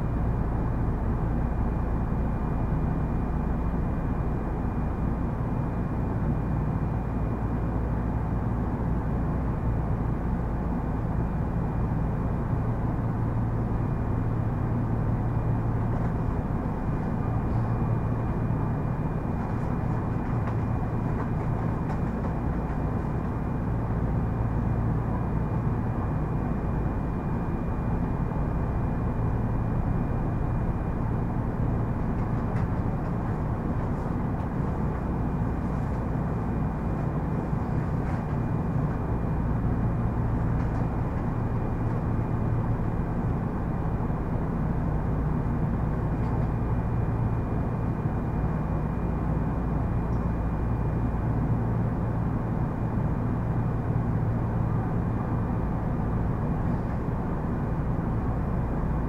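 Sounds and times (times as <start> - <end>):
train wheels rumbling on rail: 13.8 - 50.4.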